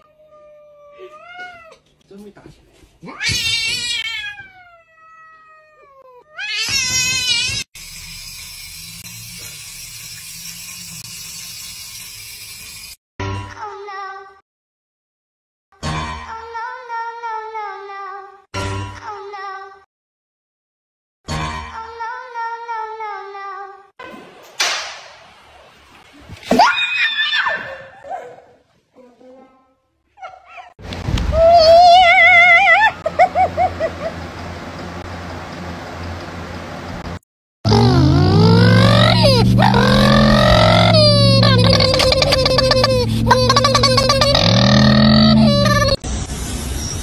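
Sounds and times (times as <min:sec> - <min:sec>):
cat yowling: 0:03.1 - 0:07.6
rising and falling cry: 0:26.5 - 0:28.2, 0:31.3 - 0:34.2, 0:37.7 - 0:46.0.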